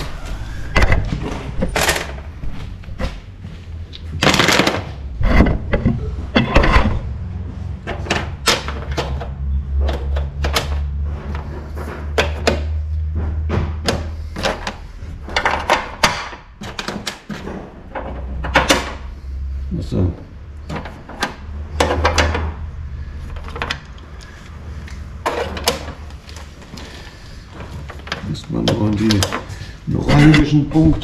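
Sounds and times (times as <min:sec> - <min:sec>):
clicks and knocks of parts fitted: 0:07.8 - 0:10.9, 0:11.9 - 0:19.1, 0:20.6 - 0:22.6, 0:23.3 - 0:30.6.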